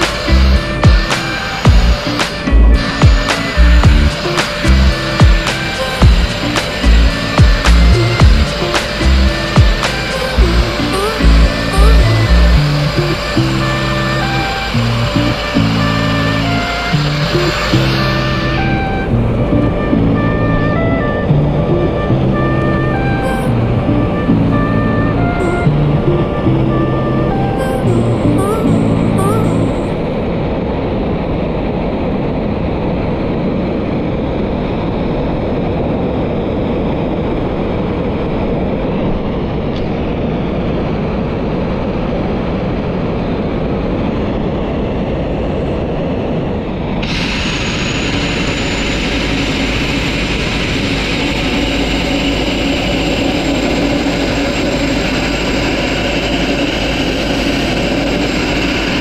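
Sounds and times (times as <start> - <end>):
sandblasting nozzle hiss: 0.0 - 18.8, 47.0 - 52.2
thin high whistle: 0.0 - 21.2, 47.0 - 56.8
air compressor drone: 0.0 - 59.0.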